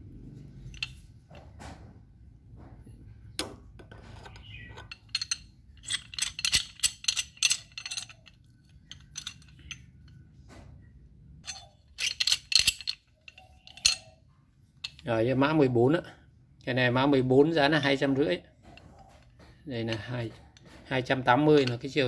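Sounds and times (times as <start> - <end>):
steel tools clinking: 0.6 - 1.5, 4.2 - 10.3, 11.4 - 14.2, 14.8 - 15.1, 18.7 - 22.0.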